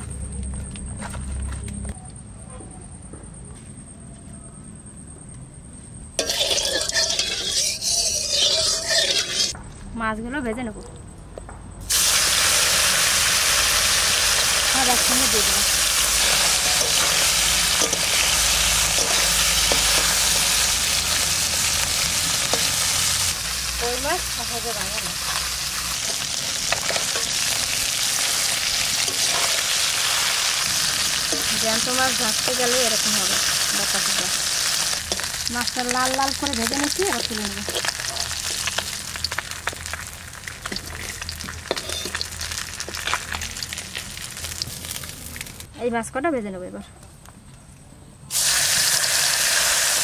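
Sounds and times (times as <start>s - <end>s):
fish sizzling in hot oil: 6.2s - 9.6s, 11.9s - 45.7s, 48.3s - 50.0s
metal spatula scraping a wok: 6.2s - 9.6s, 16.0s - 23.4s, 25.1s - 32.7s, 37.6s - 40.0s, 40.6s - 43.2s.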